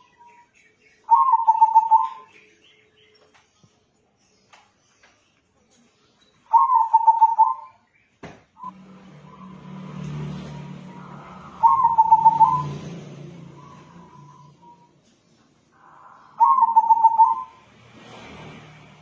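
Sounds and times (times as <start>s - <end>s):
dove cooing: 1.1s - 2.3s, 6.5s - 7.8s, 10.5s - 14.9s, 15.8s - 17.6s.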